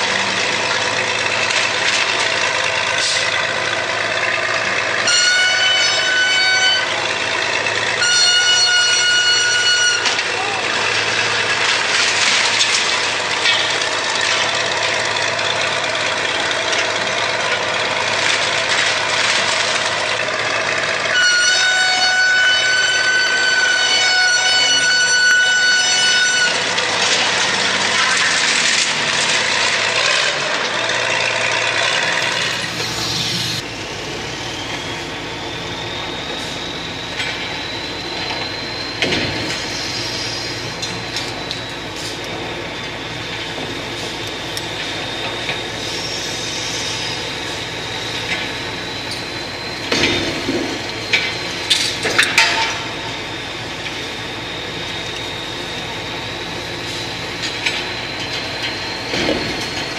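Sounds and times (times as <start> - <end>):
demolition crashes: 0.0 - 3.5, 9.0 - 20.9, 26.1 - 32.7
heavy machinery running: 0.0 - 59.9.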